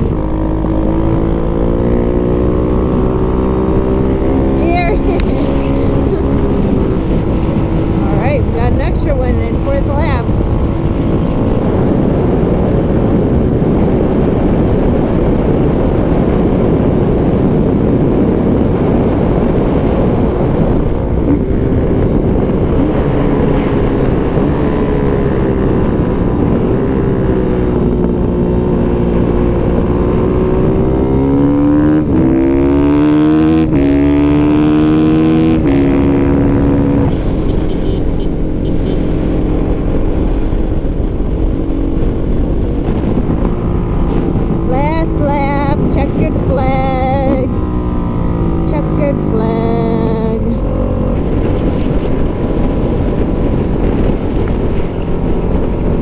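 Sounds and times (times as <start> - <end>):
wind rushing over microphone: 0.0 - 56.0
dirt bike engine revving: 29.8 - 40.0.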